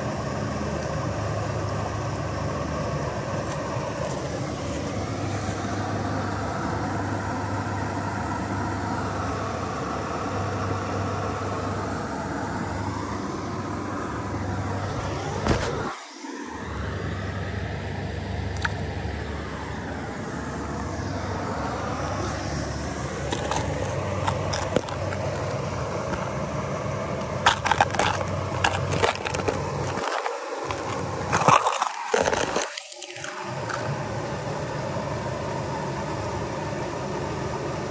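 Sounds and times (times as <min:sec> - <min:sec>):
creek water rushing over waterfall: 0:20.7 - 0:37.9.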